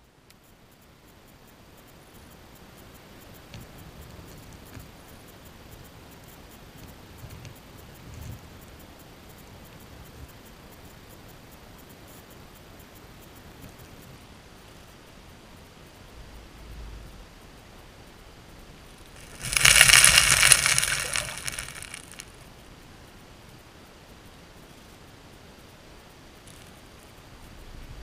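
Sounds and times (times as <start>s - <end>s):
small clicks and ticks: 0.2s - 14.2s, 18.9s - 22.5s, 26.3s - 27.6s.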